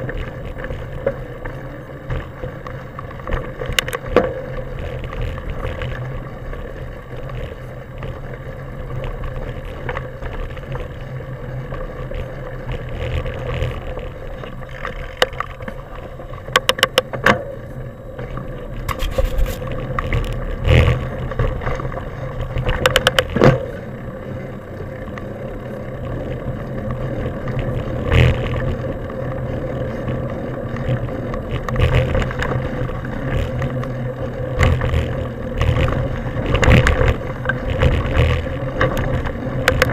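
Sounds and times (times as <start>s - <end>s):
bike rattling over bumps: 0.0s - 39.9s
bike tyres rumbling on dirt: 0.0s - 39.9s
wind against microphone: 0.0s - 39.9s.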